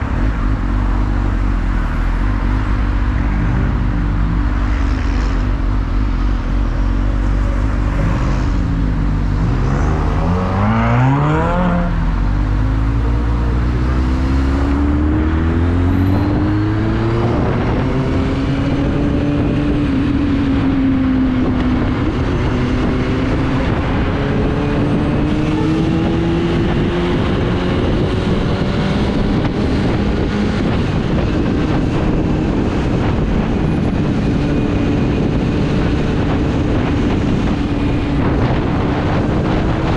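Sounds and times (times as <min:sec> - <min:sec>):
motorcycle engine revving: 0:00.0 - 0:39.9
steady rushing noise: 0:00.0 - 0:39.9.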